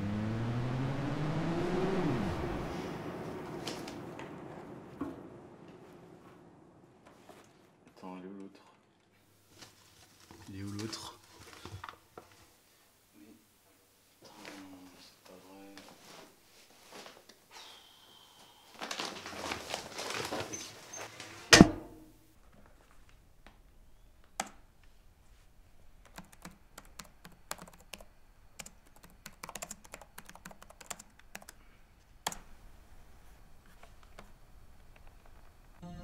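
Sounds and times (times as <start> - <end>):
rustling: 2.8 - 8.0, 8.7 - 12.9, 18.7 - 23.6
loud thunk: 21.5 - 22.0
typing on computer keyboard: 26.0 - 31.6.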